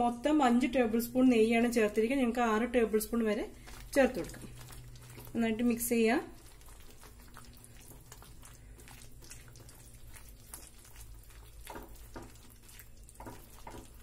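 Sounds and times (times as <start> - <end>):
thick mixture bubbling in a pan: 1.0 - 14.0
whisk stirring: 3.0 - 14.0.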